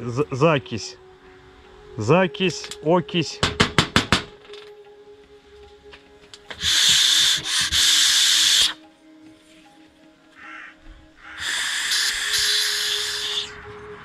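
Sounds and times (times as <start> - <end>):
hissing blasts of pressurised spray: 6.6 - 8.8, 11.4 - 13.6.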